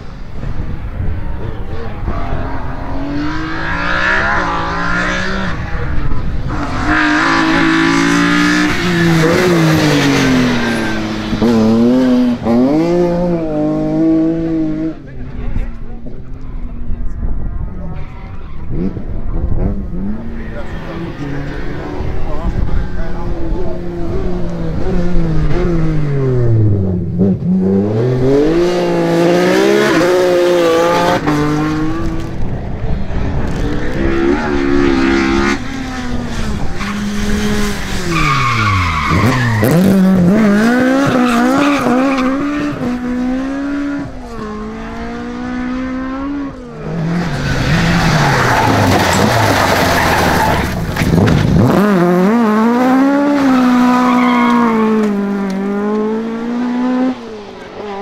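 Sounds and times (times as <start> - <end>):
rally car engines revving: 0.0 - 58.0
tyres skidding on gravel: 36.1 - 42.4, 47.1 - 51.8.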